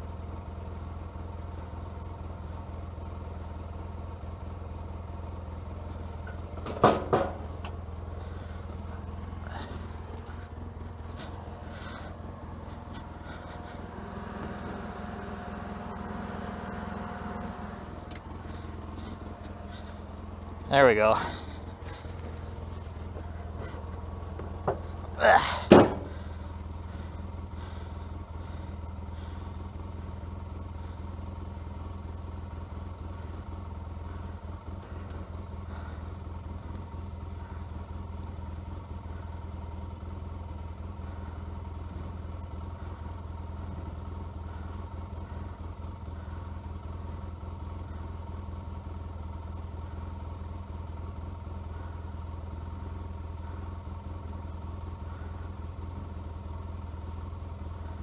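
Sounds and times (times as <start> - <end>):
engine idling: 0.0 - 58.0.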